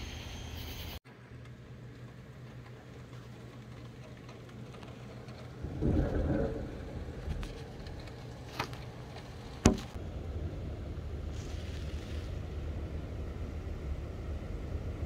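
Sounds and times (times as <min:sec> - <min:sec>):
low background hum: 0:00.0 - 0:15.0
thunder rumbling: 0:05.1 - 0:15.0.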